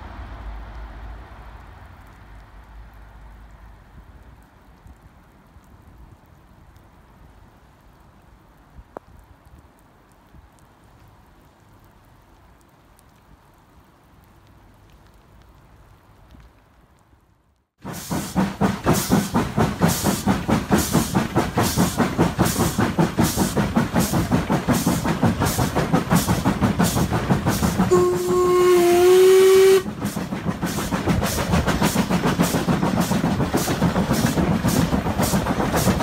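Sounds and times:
steam locomotive exhaust beating: 17.8s - 36.0s
steam locomotive chime whistle: 27.9s - 29.9s.

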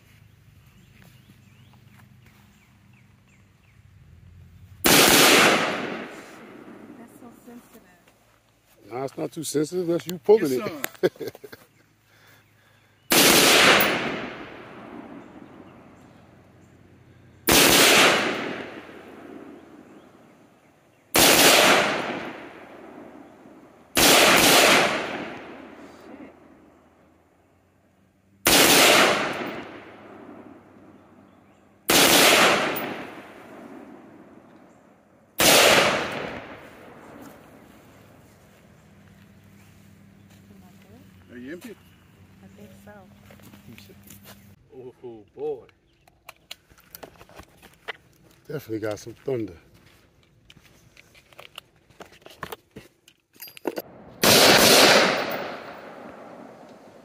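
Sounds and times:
rifle shots echoing: 4.8s - 7.2s, 13.1s - 15.9s, 17.5s - 19.9s, 21.1s - 26.2s, 28.4s - 31.2s, 31.8s - 34.6s, 35.4s - 37.6s, 53.8s - 57.0s.

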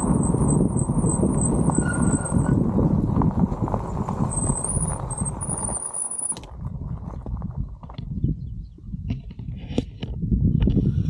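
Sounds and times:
tyres rumbling on gravel: 0.0s - 8.3s.

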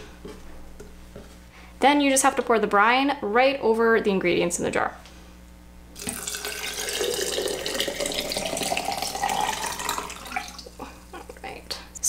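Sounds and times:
liquid pouring into a glass jar: 6.0s - 10.8s.

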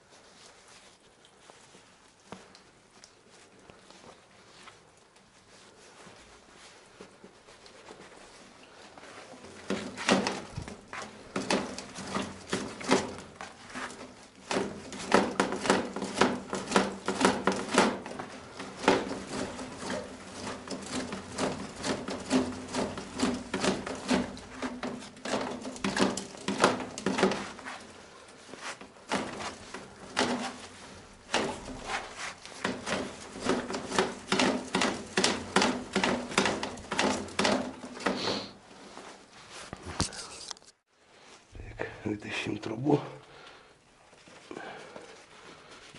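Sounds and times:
knocking and clattering on pipe: 9.6s - 27.7s, 32.6s - 38.2s.

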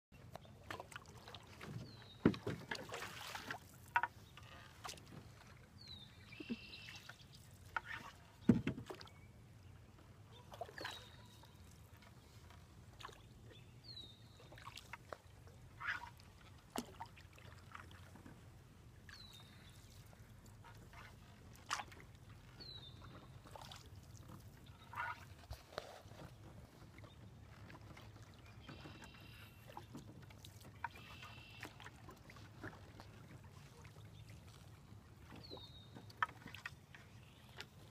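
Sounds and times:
water swishing and dripping: 0.2s - 9.1s, 14.0s - 37.9s
paddle knocking against canoe: 0.6s - 5.5s, 7.7s - 9.1s.

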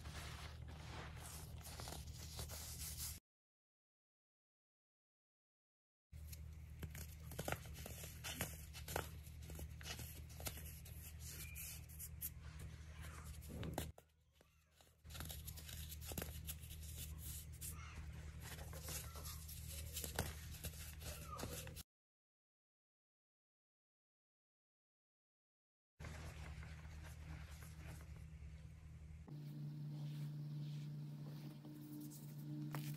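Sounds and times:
steady low hum: 26.1s - 32.9s.

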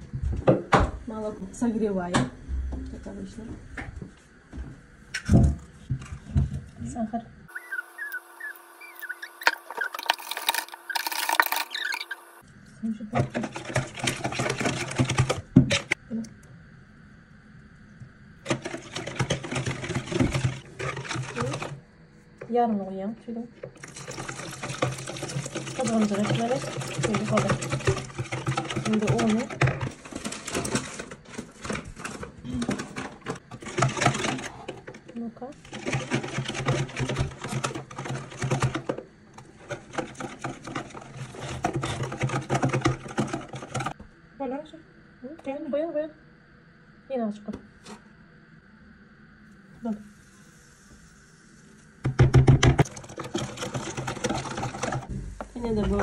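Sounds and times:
whisk clattering in plastic bowl: 13.2s - 15.9s, 18.5s - 21.8s, 23.8s - 34.4s, 35.6s - 39.0s, 39.6s - 44.0s, 52.1s - 55.1s.

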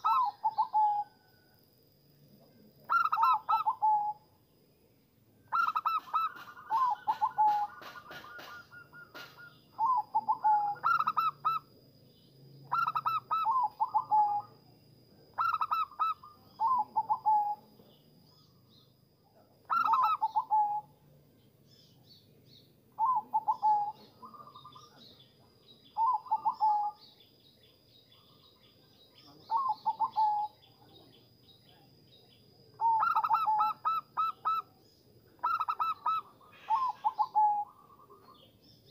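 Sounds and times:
dove cooing: 0.0s - 1.3s, 2.8s - 4.2s, 5.5s - 11.7s, 12.7s - 14.6s, 15.3s - 17.8s, 19.6s - 20.9s, 23.0s - 25.1s, 26.0s - 27.1s, 29.4s - 30.7s, 32.8s - 34.8s, 35.4s - 38.5s.

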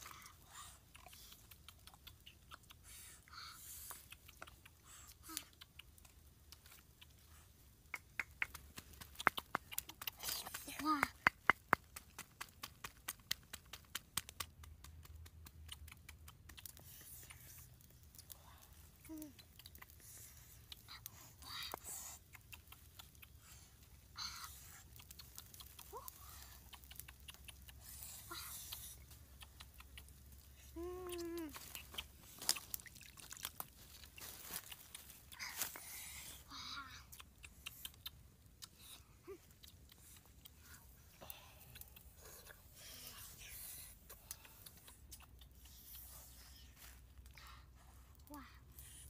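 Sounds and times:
wood fire crackling: 0.0s - 45.6s
dry sticks clicking: 24.2s - 35.8s.

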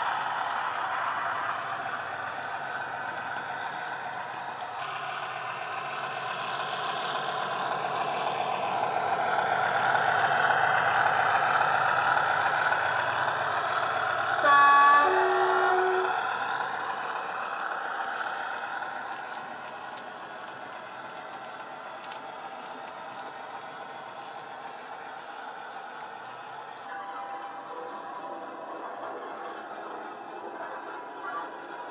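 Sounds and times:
model diesel locomotive engine: 0.0s - 31.9s
two-tone horn: 14.4s - 16.2s.

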